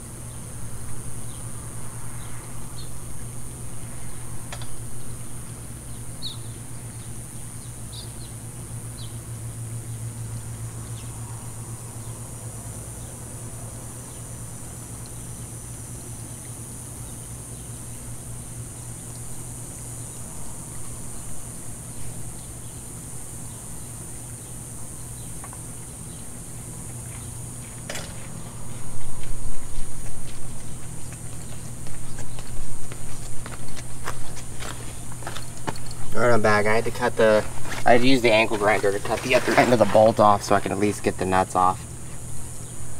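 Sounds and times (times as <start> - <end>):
steady low hum: 0.0 - 42.9
high-pitched hiss: 34.1 - 42.9.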